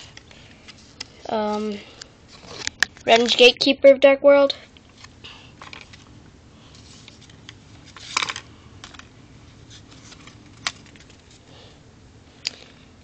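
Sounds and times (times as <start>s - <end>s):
cards being handled: 6.8s - 11.4s
cards clattering: 7.0s - 9.1s, 9.7s - 11.3s.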